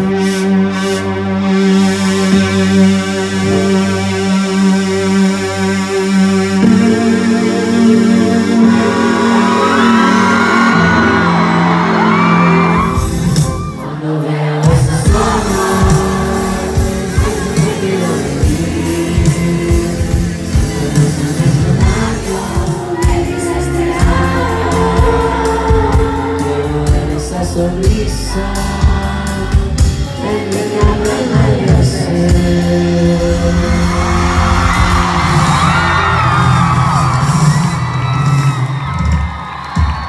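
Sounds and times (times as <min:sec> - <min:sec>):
live band playing: 0:00.0 - 0:40.0
person singing: 0:06.6 - 0:36.6
crowd singing and shouting: 0:06.6 - 0:40.0.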